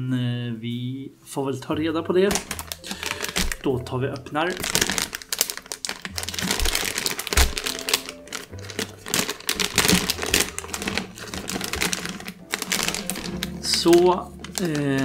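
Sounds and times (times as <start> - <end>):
plastic bag crinkling: 2.2 - 15.0.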